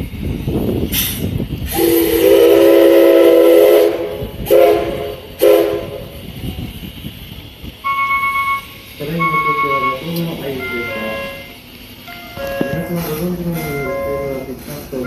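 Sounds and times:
steam hiss: 0.0 - 15.0
steam locomotive whistle: 1.7 - 6.2, 7.8 - 11.6.

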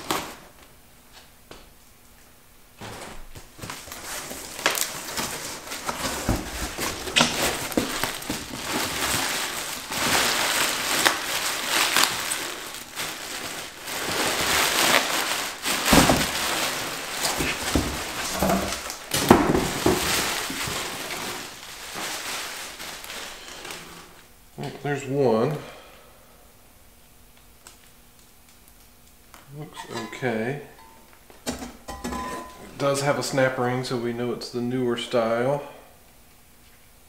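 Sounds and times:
packing peanuts rustling: 0.0 - 0.7, 2.8 - 24.3
plastic wrap crinkling: 0.0 - 1.2, 2.8 - 24.3.

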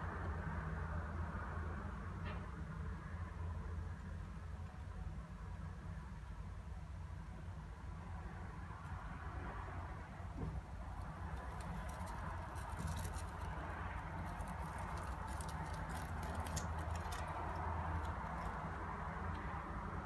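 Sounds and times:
hamster claws pattering and scratching: 8.8 - 19.6.

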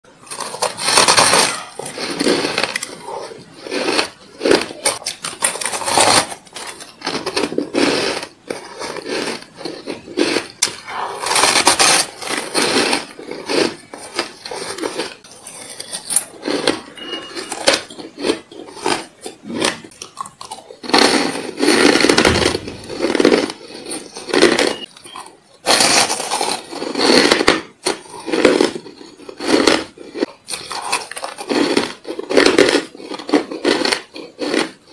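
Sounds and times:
person crunching ice: 0.1 - 34.9.

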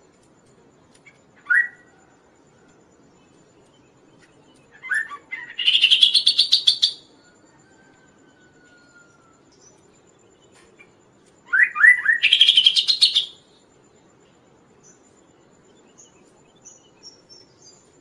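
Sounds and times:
bird singing: 0.9 - 18.0.

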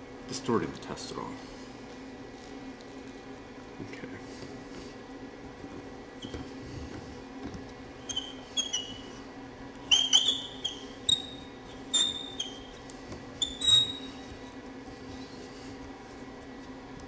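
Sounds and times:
screw squeaking and clicking: 8.0 - 9.0, 9.8 - 12.8, 13.4 - 14.1.

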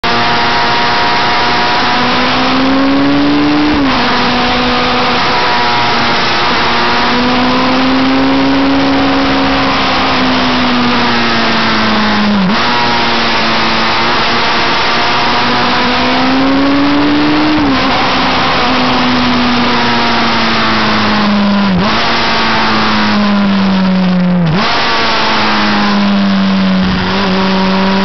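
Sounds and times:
sport bike engine revving: 0.0 - 28.0.

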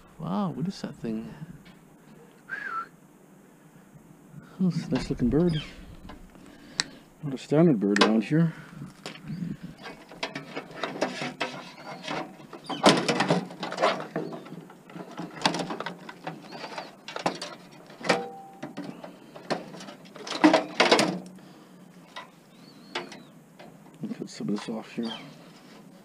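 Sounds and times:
faint bird chirps: 5.2 - 7.0, 22.3 - 23.4, 24.6 - 25.5
metal computer parts clattering: 9.8 - 21.3.

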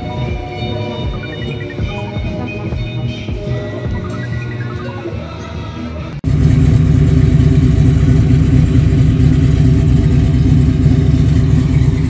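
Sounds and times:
car exhaust deep rumble: 6.2 - 12.0.

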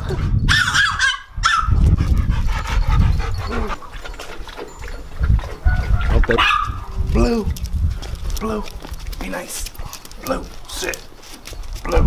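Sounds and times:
dog whining: 2.8 - 3.9
low rumbling microphone noise: 4.9 - 10.7.

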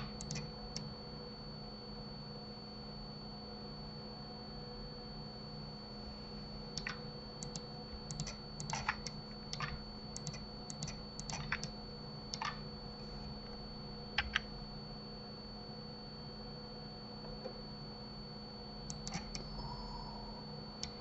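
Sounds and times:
keyboard and mouse clicks: 0.0 - 0.9, 6.8 - 12.6, 14.2 - 14.5, 18.9 - 19.5
faint hum: 0.0 - 21.0
thin high whine: 18.9 - 21.0.

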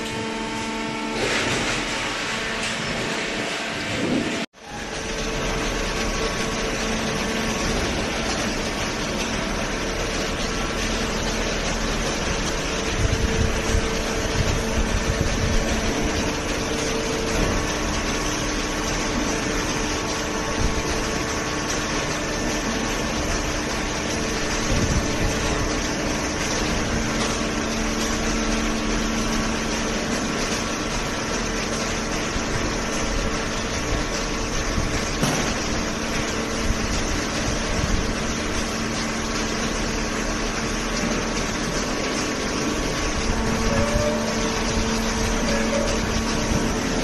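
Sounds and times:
industrial machine hum and rumble: 0.0 - 47.0
machine knocks: 35.1 - 36.2.

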